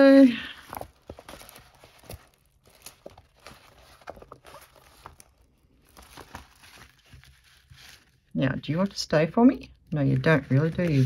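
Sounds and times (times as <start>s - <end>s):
plastic film crinkling: 0.0s - 11.0s.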